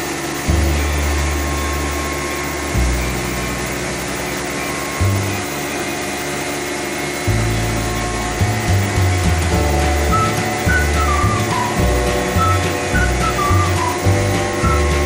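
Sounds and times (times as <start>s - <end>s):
flour mill whirring: 0.0s - 15.0s
background music: 8.4s - 15.0s.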